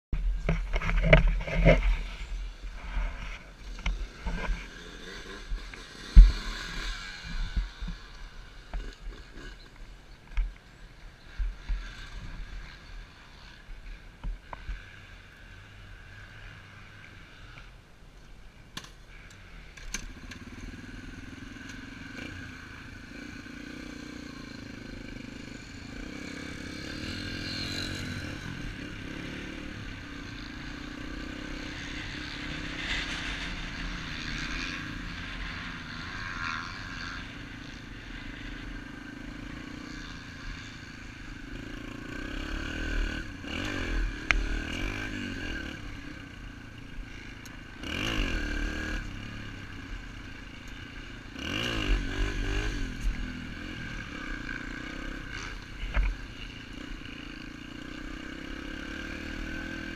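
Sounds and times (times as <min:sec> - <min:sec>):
motorbike engine running: 0:00.4 - 0:09.6.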